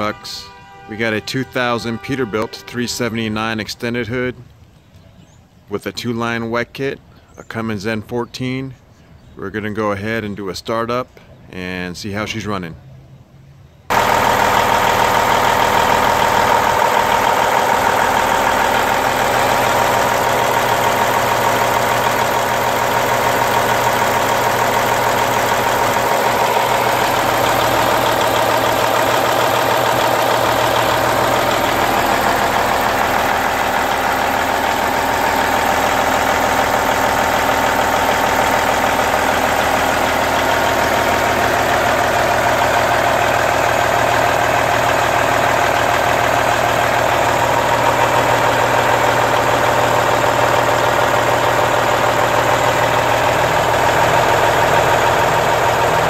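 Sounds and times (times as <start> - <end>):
diesel engine idling: 13.9 - 56.0.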